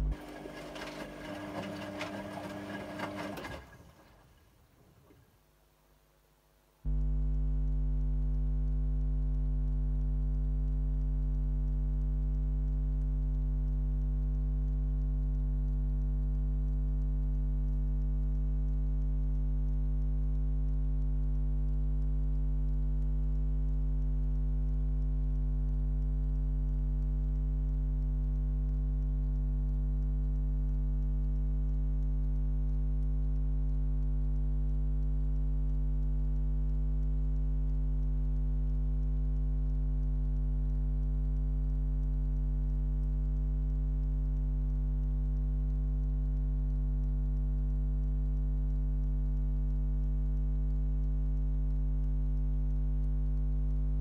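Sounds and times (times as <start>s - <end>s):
washing machine mains hum: 0.0s - 5.5s.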